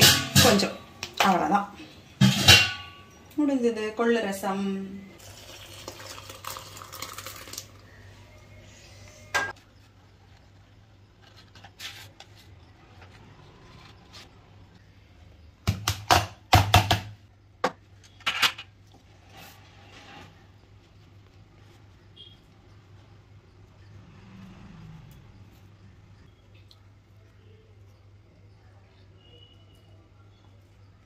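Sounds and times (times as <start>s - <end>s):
liquid splashing into pot: 5.2s - 7.9s.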